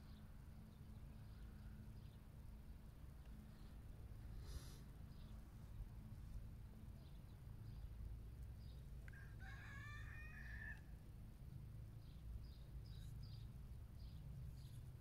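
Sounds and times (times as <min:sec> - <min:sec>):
rooster crowing: 0:09.1 - 0:10.9.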